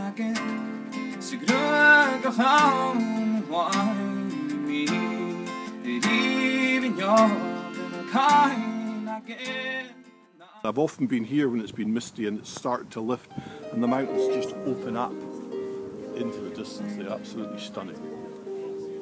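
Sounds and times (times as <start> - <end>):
strummed acoustic guitar: 0.0 - 10.4.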